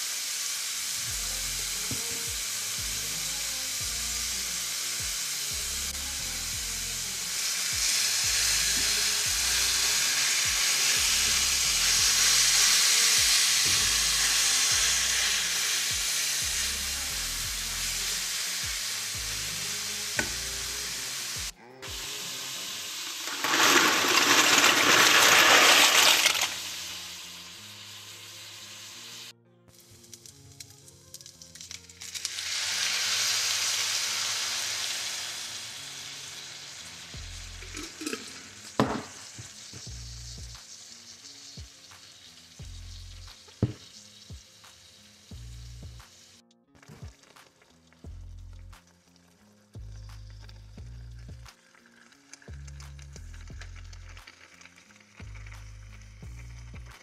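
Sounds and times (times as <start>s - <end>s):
meat sizzling in a frying pan: 0.0s - 57.0s
utensil stirring in pan: 7.2s - 29.0s, 31.1s - 45.2s.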